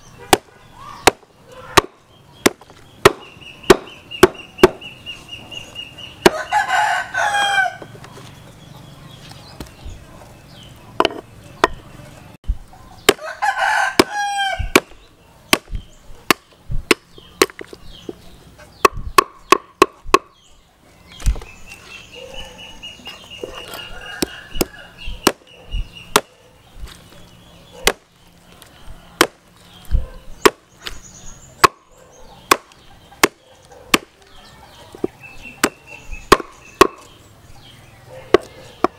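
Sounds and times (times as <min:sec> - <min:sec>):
hammer chopping on wooden block: 0:00.3 - 0:04.8, 0:11.0 - 0:11.8, 0:13.9 - 0:18.2, 0:18.8 - 0:20.4, 0:26.1 - 0:26.4, 0:31.6 - 0:31.8, 0:32.5 - 0:34.2, 0:35.0 - 0:37.1
rooster crowing: 0:06.3 - 0:07.9, 0:13.2 - 0:14.7, 0:23.6 - 0:25.1.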